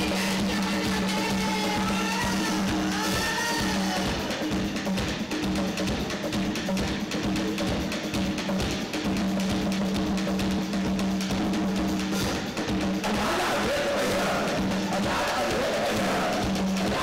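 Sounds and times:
drum kit and percussion: 0.0s - 17.0s
voices singing: 13.0s - 17.0s.

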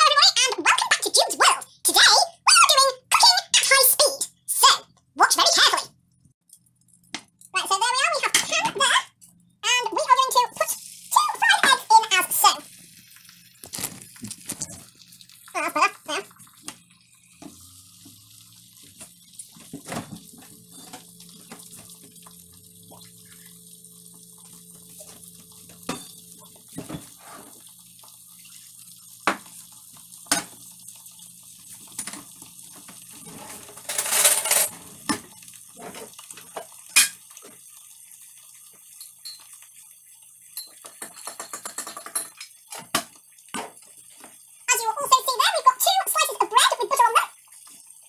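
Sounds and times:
dishes and cutlery clinking: 39.0s - 39.6s, 40.5s - 43.7s.

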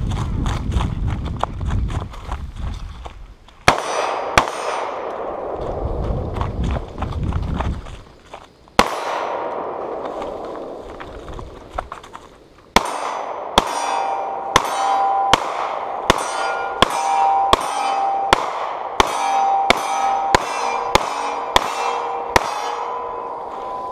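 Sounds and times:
gunshots: 3.7s - 6.0s, 8.8s - 23.9s
steel plate target clang: 12.8s - 23.9s.

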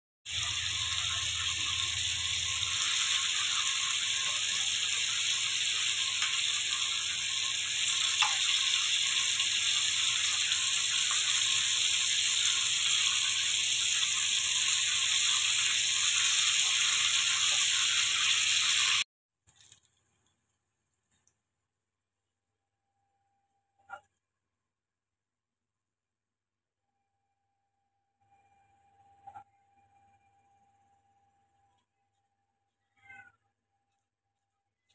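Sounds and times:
bacon sizzling in a pan: 0.3s - 19.0s.

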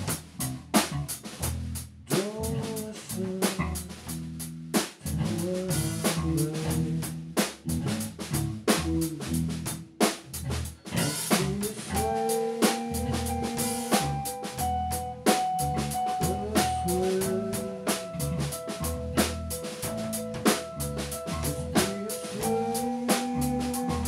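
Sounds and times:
drum kit: 0.0s - 24.0s
electric bass guitar: 0.0s - 24.0s
held pitched tone: 11.9s - 24.0s.

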